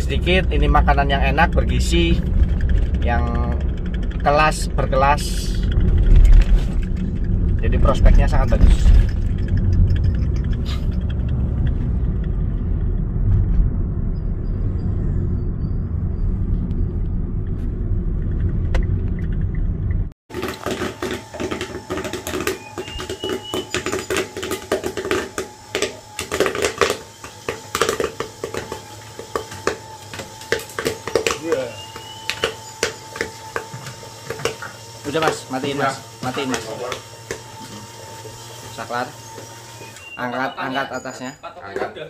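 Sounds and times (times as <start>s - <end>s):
popcorn popping: 0.0s - 12.2s, 20.3s - 40.2s
car cabin road rumble: 0.0s - 20.2s
stirring motor whine: 0.0s - 41.2s.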